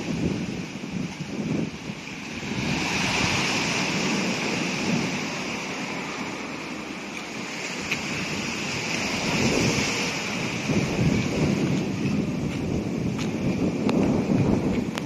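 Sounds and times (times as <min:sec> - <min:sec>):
surf breaking over rocks: 0:00.0 - 0:15.0
wind on microphone: 0:00.0 - 0:15.0.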